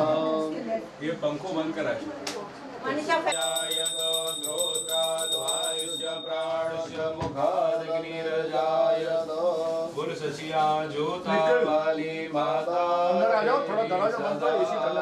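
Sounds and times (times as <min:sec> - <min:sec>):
small bell ringing rapidly: 0:03.3 - 0:06.9
person chanting in sing-song voice: 0:03.4 - 0:15.0.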